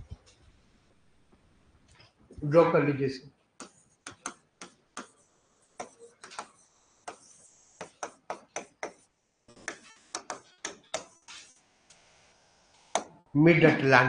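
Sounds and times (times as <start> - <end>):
writing tool tapping on board: 3.6 - 5.2, 5.8 - 9.1, 9.7 - 11.2.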